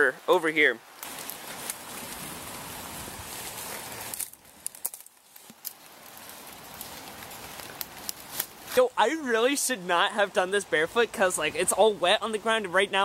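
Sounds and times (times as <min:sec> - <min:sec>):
rain on wet leaves: 0:00.0 - 0:13.0
footsteps on wet leaves: 0:00.8 - 0:09.0.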